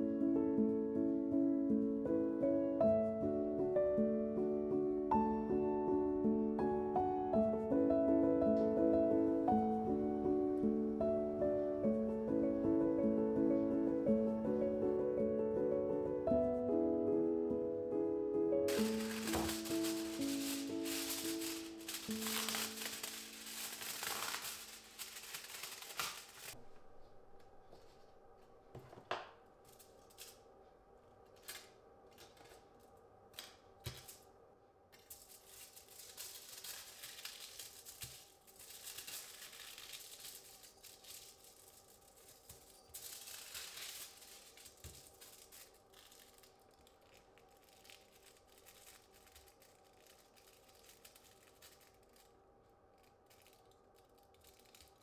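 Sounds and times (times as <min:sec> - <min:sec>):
foil tearing off a roll: 0:18.7 - 0:26.6, 0:31.4 - 0:34.2, 0:35.0 - 0:52.4, 0:53.0 - 0:55.0
foil crinkling and rustling: 0:18.7 - 0:28.3, 0:29.6 - 0:30.4, 0:31.2 - 0:34.2, 0:35.0 - 0:55.0.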